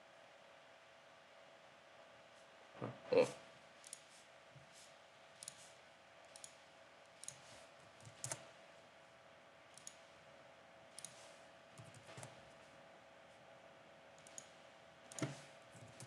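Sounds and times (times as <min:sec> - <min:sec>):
faint steady hum: 0:00.0 - 0:16.0
computer mouse clicks: 0:03.8 - 0:04.1, 0:05.4 - 0:05.7, 0:06.3 - 0:08.5, 0:09.7 - 0:10.1, 0:10.9 - 0:12.4, 0:14.2 - 0:16.0.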